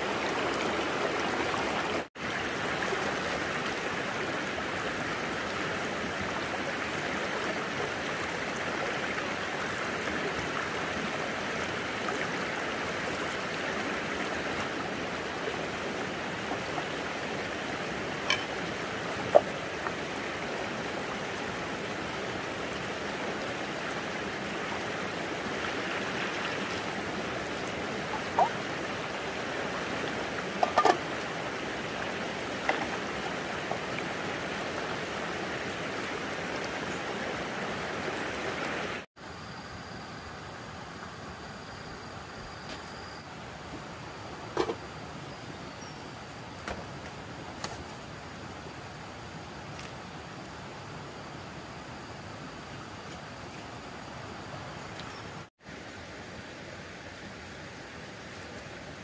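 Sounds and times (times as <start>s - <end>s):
running water rushing: 0.0s - 39.1s.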